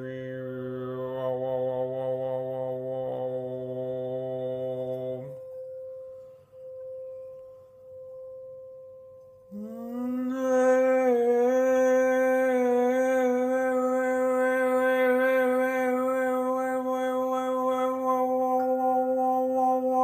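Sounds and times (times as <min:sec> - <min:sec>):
singing bowl ringing: 0:03.2 - 0:20.0
man's voice droning: 0:09.6 - 0:20.0.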